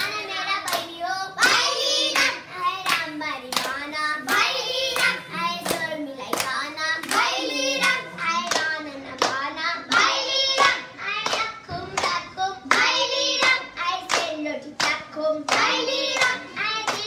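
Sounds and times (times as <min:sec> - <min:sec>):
girls singing together: 0:00.0 - 0:17.0
hands clapping: 0:00.0 - 0:17.0.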